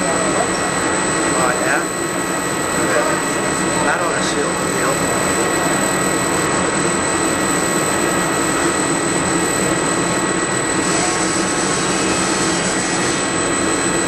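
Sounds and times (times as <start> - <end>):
lathe machine whine: 0.0 - 14.0.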